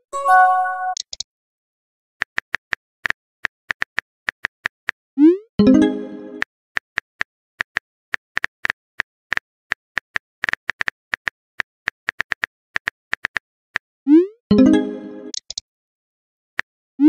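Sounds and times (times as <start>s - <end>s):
message chime: 0.0s - 1.0s, 5.6s - 6.4s, 14.5s - 15.3s.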